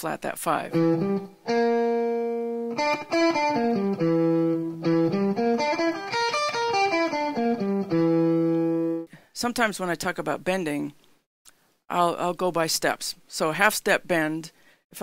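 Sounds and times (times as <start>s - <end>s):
electric guitar arpeggio: 0.7s - 9.1s.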